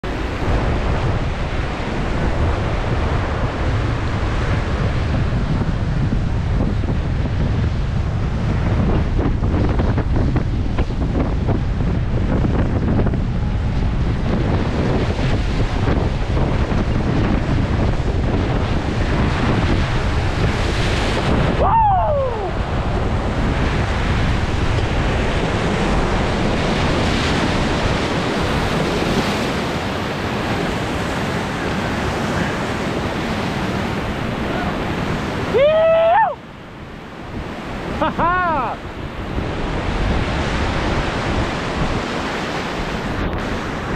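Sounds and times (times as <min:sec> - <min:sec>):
rushing whitewater: 0:00.0 - 0:12.2, 0:12.8 - 0:43.9
wind buffeting microphone: 0:00.0 - 0:43.9
person shouting: 0:21.6 - 0:22.6, 0:34.5 - 0:34.8, 0:35.5 - 0:36.4, 0:38.1 - 0:38.8.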